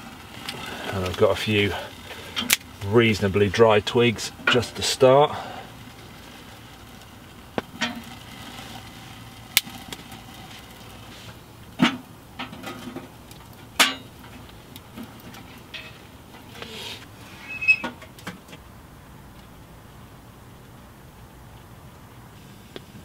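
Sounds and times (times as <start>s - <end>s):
twigs knocking against stove: 2.0s - 2.8s.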